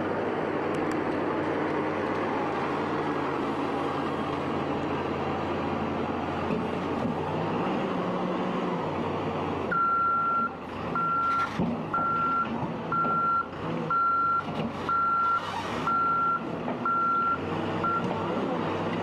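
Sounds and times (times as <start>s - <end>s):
diesel engine running: 0.0s - 19.0s
back-up alarm beeping: 9.7s - 18.1s.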